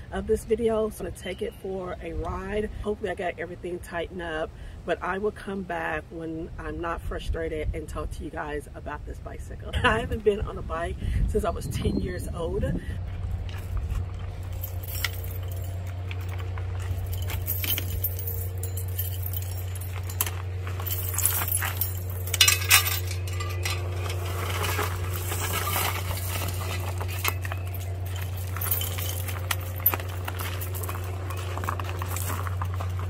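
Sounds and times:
low machine hum: 0.0 - 33.0
light clicks and metallic clinks: 14.2 - 33.0.

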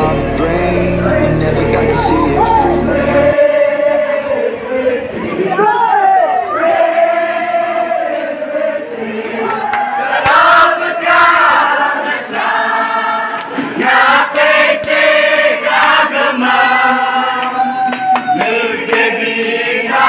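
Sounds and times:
group of people singing: 0.0 - 5.7, 6.5 - 20.0
sharp claps: 14.3 - 16.0.

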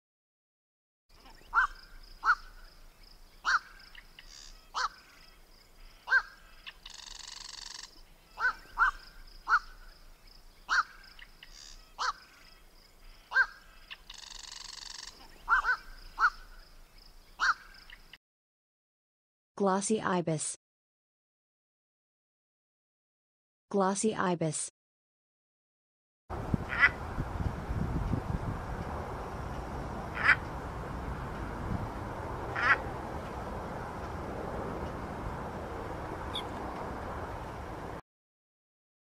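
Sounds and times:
heron harsh calls: 1.5 - 2.6, 3.4 - 5.0, 6.0 - 9.8, 10.7 - 12.3, 13.3 - 16.5, 17.4 - 17.8, 26.7 - 27.0, 30.1 - 30.4, 32.5 - 32.8.

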